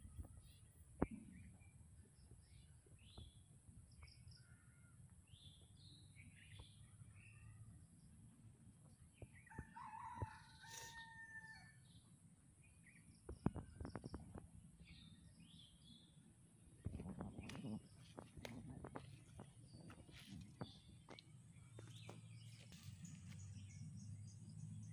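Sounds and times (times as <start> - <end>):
faint rooster crowing: 9.4 - 11.9
small birds chirping: 12.7 - 24.9.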